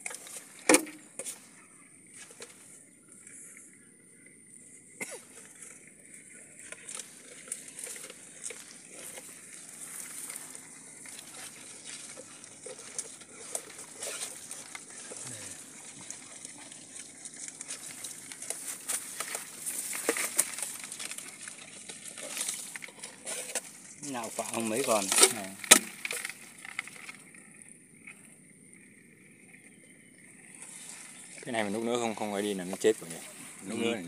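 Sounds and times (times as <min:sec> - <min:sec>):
crinkling plastic rustles: 0:06.6 - 0:27.4.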